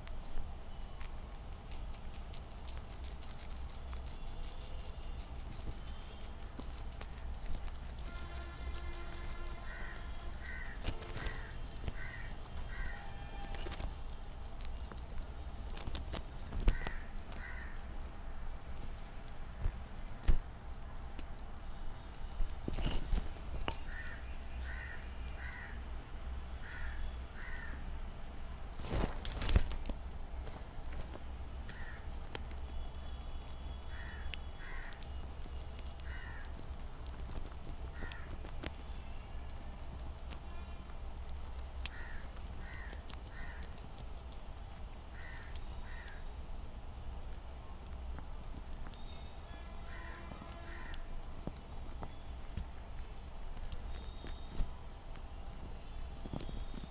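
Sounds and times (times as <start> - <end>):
guinea pigs chewing greens: 0.0 - 56.9
steady low hum: 0.0 - 56.9
plastic sheet rustling: 28.8 - 31.1
short animal calls: 49.8 - 51.1.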